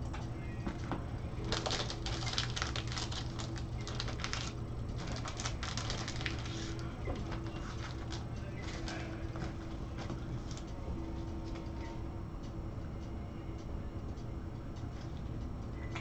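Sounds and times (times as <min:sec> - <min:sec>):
steady low hum: 0:00.0 - 0:16.0
plastic card holder crackling: 0:01.4 - 0:09.0.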